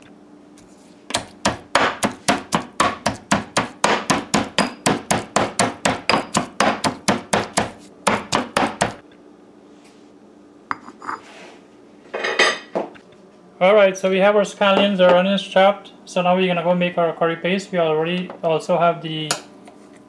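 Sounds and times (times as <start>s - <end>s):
stone pestle pounding in mortar: 1.1s - 9.0s.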